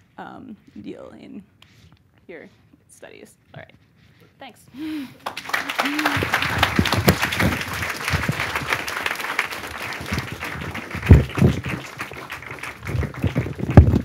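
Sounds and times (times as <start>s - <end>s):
audience applauding: 4.9s - 14.0s
low thumps: 6.2s - 8.7s, 10.0s - 12.0s, 12.7s - 14.0s.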